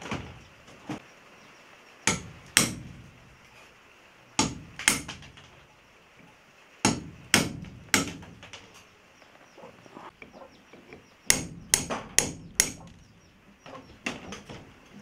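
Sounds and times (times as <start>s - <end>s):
hammer striking chisel on stone: 2.1s - 3.0s, 4.4s - 5.5s, 6.8s - 8.6s, 11.3s - 13.0s.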